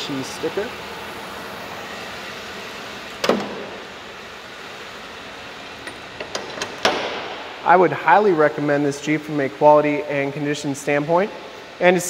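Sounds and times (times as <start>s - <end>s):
car engine idling: 0.0s - 11.9s
car hood slammed shut: 6.8s - 7.4s.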